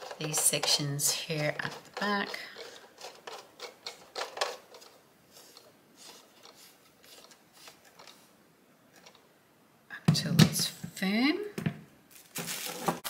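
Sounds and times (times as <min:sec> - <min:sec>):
plastic scraping and clicking: 0:00.0 - 0:08.2, 0:08.9 - 0:09.3.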